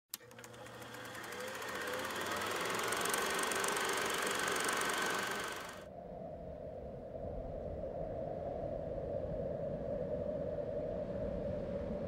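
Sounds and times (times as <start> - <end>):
machine clattering with faint whine: 0.1 - 5.8.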